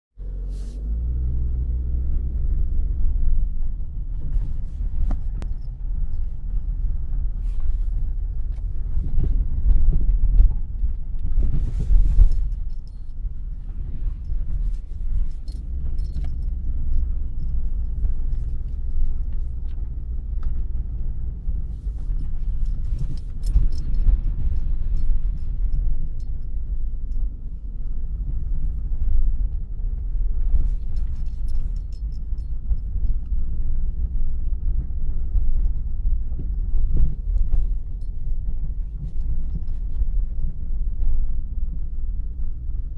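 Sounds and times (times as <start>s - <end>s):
low rumble of engine and tyres: 0.1s - 42.9s.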